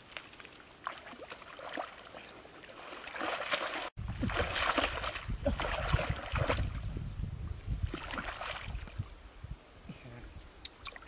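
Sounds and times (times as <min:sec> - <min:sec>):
water sloshing and splashing: 0:00.0 - 0:06.9, 0:07.8 - 0:09.1.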